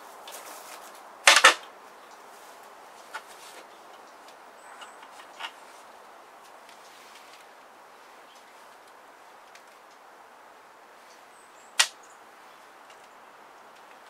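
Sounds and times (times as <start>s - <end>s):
faint clicks of small items: 6.4s - 7.7s, 12.8s - 14.0s.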